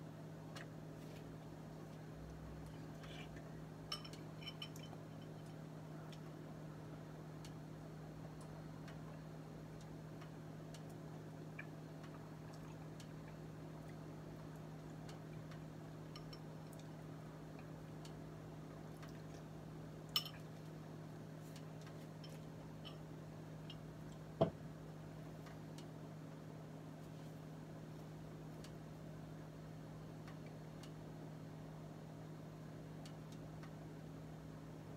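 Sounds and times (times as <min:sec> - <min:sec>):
faint kitchen hum: 0:00.0 - 0:34.9
light ticks: 0:07.4 - 0:07.6, 0:08.2 - 0:09.2, 0:09.8 - 0:11.0, 0:11.6 - 0:16.9, 0:17.5 - 0:18.2, 0:25.4 - 0:26.0, 0:28.0 - 0:28.8, 0:30.2 - 0:31.0, 0:33.0 - 0:33.8.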